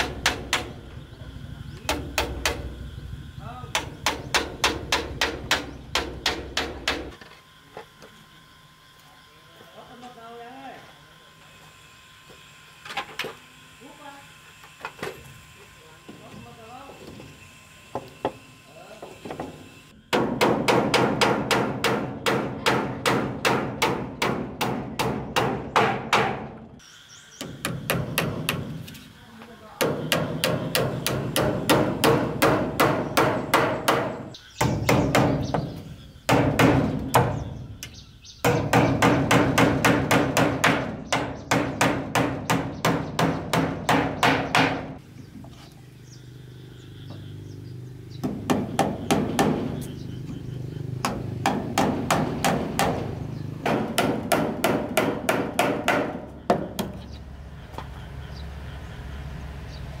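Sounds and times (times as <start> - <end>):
hammer striking wood: 0.0 - 0.7, 1.9 - 2.7, 3.7 - 7.2, 19.3 - 26.6, 27.4 - 28.8, 29.8 - 37.5, 38.4 - 45.0, 48.2 - 49.8, 51.0 - 57.0.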